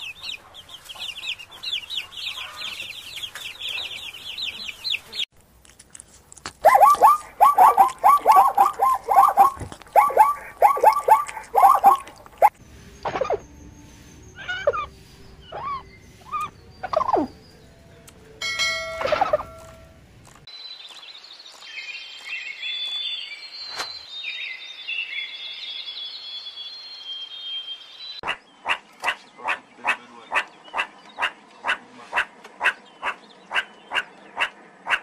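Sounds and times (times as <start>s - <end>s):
birds singing: 0.0s - 5.3s, 6.6s - 18.4s, 20.4s - 35.0s
short sharp calls: 6.6s - 12.5s.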